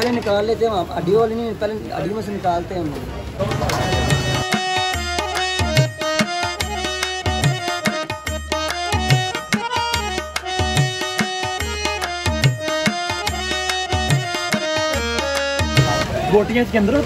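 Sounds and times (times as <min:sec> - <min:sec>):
hand drum beat: 0:03.5 - 0:16.2
melody: 0:03.5 - 0:16.6.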